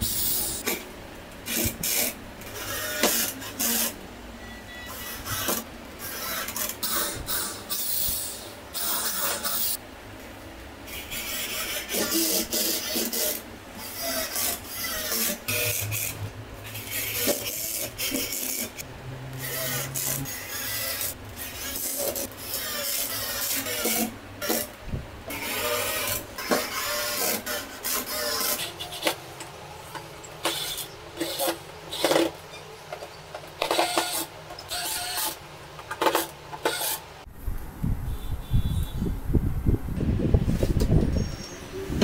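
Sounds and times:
drill driving screws: 1.5s - 4.0s, 25.3s - 29.1s, 30.4s - 32.3s, 33.6s - 37.0s.

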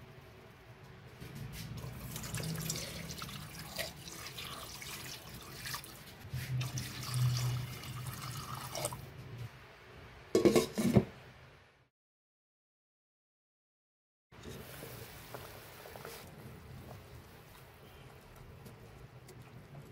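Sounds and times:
water pouring into a pot: 1.8s - 9.0s.

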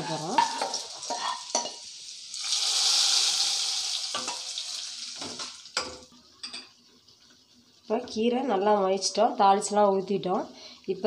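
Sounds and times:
hot oil sizzling: 0.0s - 6.1s.

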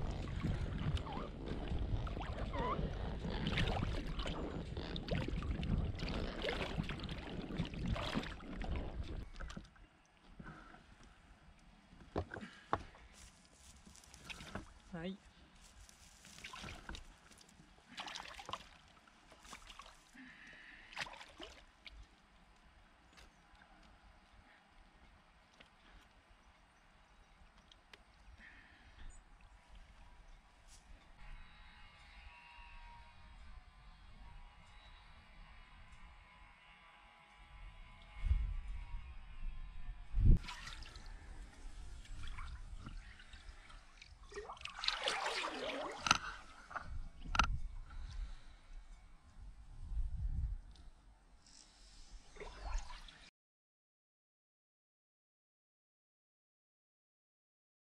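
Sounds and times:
shallow water splashing: 0.0s - 9.8s, 13.8s - 14.9s, 15.9s - 22.1s, 40.4s - 47.4s.

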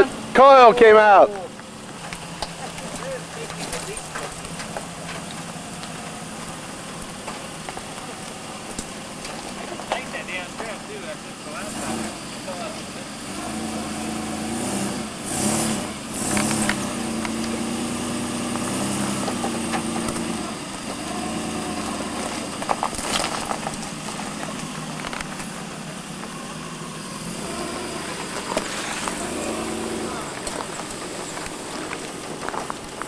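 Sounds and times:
suv engine revving: 0.0s - 33.0s.

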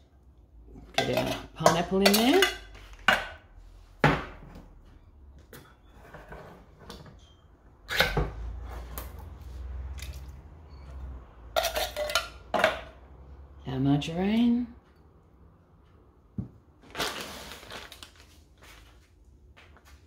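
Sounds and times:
spoon scraping a tin can: 11.6s - 12.3s.

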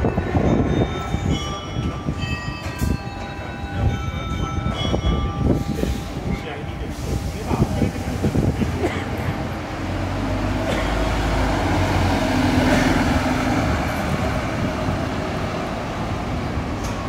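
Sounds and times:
bus diesel engine accelerating: 4.6s - 17.0s.

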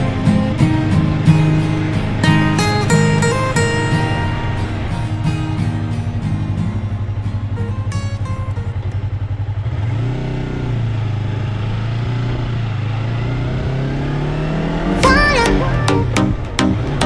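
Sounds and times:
motorcycle engine pulling away: 0.0s - 17.0s
multi-tone bending sound: 14.5s - 17.0s.

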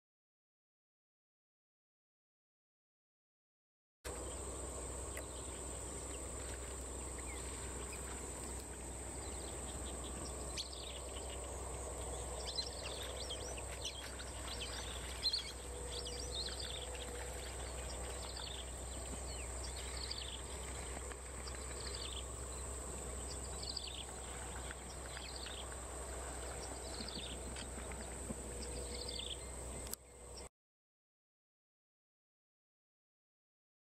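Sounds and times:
high insect drone: 4.1s - 29.9s
bird chirping: 4.1s - 30.5s
low steady rumble: 4.1s - 30.5s.

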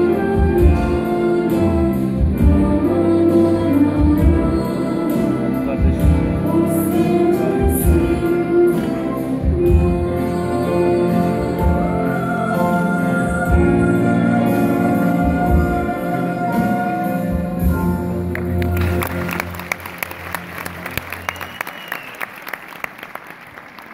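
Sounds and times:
audience applauding: 18.3s - 23.9s.

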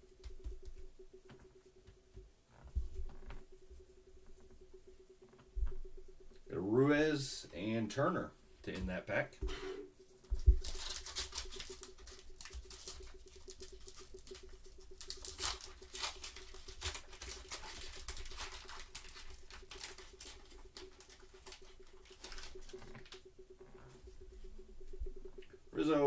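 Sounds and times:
faint steady hum: 0.0s - 26.0s
wrapper tearing and crinkling: 10.6s - 22.7s.

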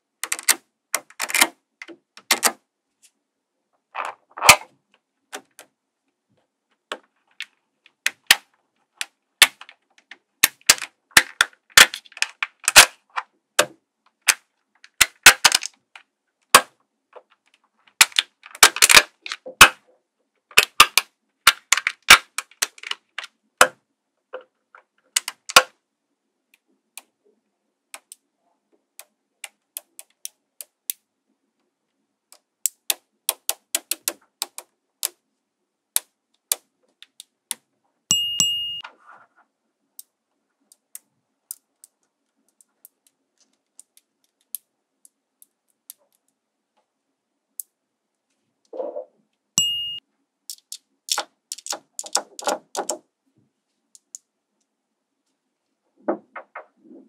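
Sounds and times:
magnetic balls clicking together: 29.0s - 31.0s, 32.3s - 35.2s, 40.7s - 46.3s, 50.5s - 53.0s, 54.0s - 54.2s.

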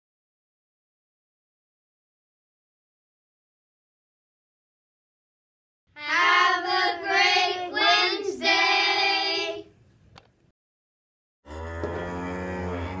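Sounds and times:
children singing in unison: 6.0s - 9.7s
cow mooing: 11.5s - 13.0s.

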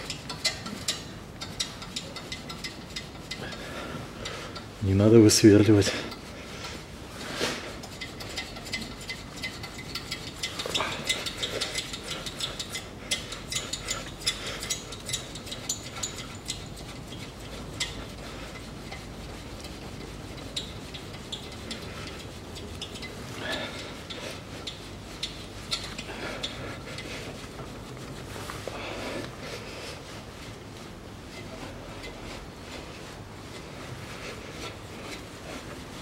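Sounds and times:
ratchet wrench clicking: 7.8s - 17.2s.

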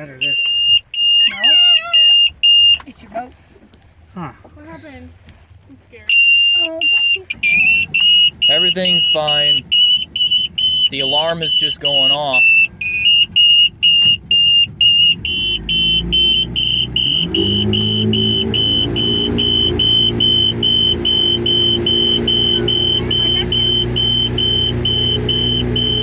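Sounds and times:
alarm beeping: 0.0s - 2.8s, 6.0s - 26.0s
boat engine running: 6.1s - 26.0s.

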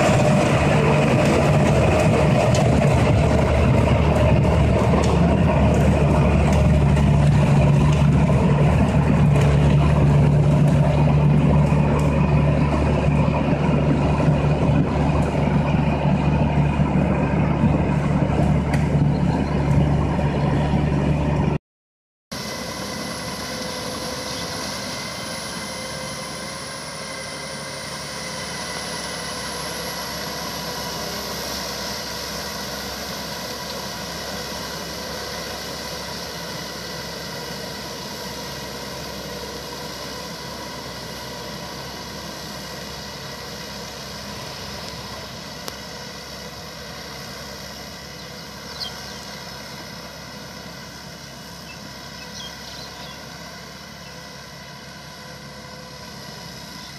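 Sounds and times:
tractor engine running: 0.0s - 21.6s, 22.3s - 56.9s.

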